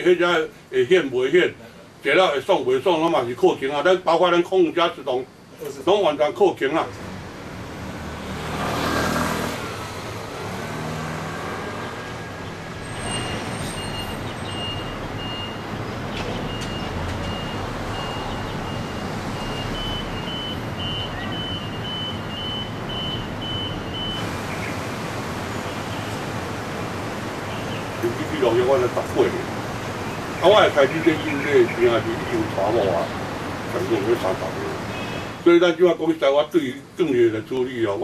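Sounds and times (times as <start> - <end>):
traffic noise: 0.0 - 38.0
vehicle passing: 6.9 - 35.4.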